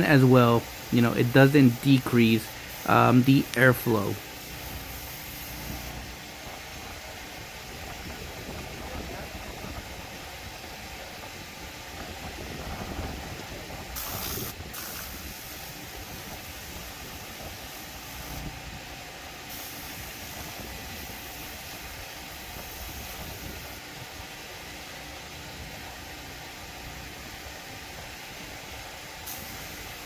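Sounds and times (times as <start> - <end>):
air blow gun hissing: 0.0 - 6.8, 13.9 - 18.6, 19.5 - 23.8, 29.2 - 30.0.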